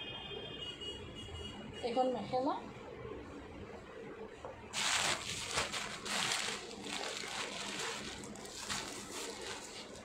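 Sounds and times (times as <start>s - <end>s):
cloth rustling against microphone: 4.7s - 10.0s.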